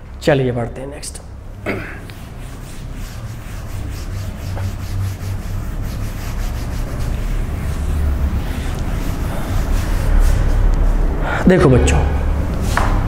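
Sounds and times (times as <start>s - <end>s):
steady low rumble: 0.0s - 12.8s
rubbing strokes on a board: 1.8s - 11.2s.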